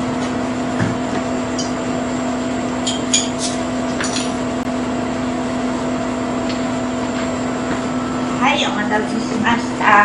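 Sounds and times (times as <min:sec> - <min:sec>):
steady hum: 0:00.0 - 0:10.0
tableware clinking: 0:02.8 - 0:04.4.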